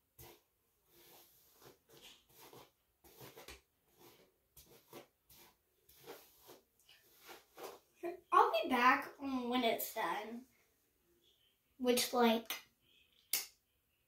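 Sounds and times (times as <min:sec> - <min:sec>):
hairbrush swishing through hair: 0:00.2 - 0:07.8.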